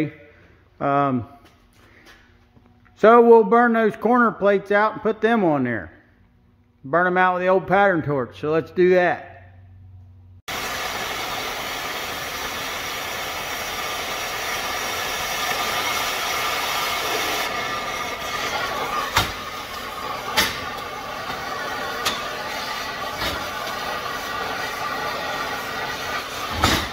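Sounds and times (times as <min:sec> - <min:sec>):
cutting torch hissing: 0:10.5 - 0:26.9
sharp pops: 0:18.4 - 0:21.4.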